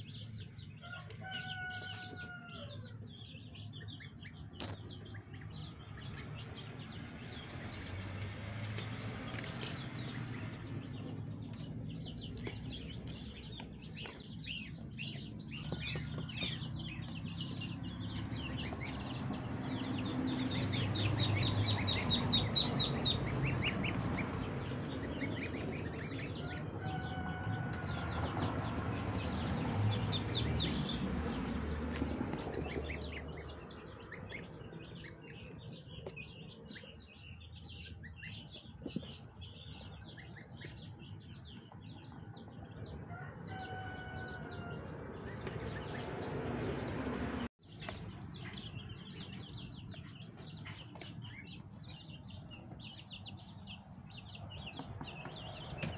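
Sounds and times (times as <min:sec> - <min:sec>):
goslings and ducklings peeping: 0:00.0 - 0:55.9.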